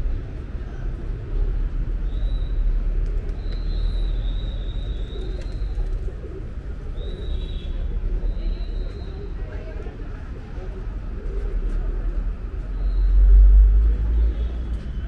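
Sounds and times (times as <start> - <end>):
city traffic rumble: 0.0 - 15.0
pigeons cooing: 3.0 - 8.2.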